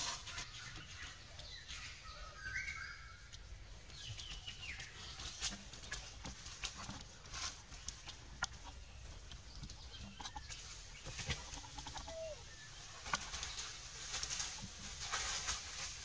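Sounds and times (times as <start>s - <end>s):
light rustles and clicks: 3.3s - 12.0s, 12.9s - 16.0s
faint high-pitched animal squeaks: 11.6s - 12.6s.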